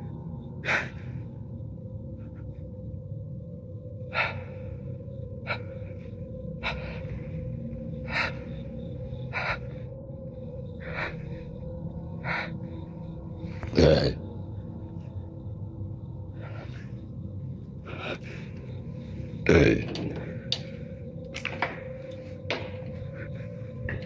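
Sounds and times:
steady low hum: 0.0 - 24.0
person breathing noisily: 4.0 - 13.7, 16.0 - 19.4.

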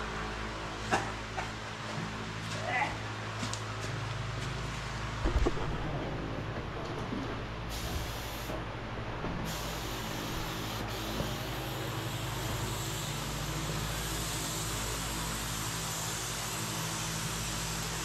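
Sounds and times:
steady low hum: 0.0 - 18.0
spray gun hissing: 7.7 - 8.6, 9.5 - 18.0.

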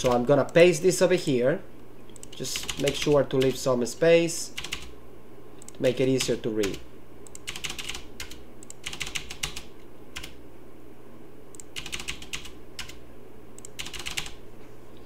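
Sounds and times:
keyboard keys tapping: 11.7 - 13.0.

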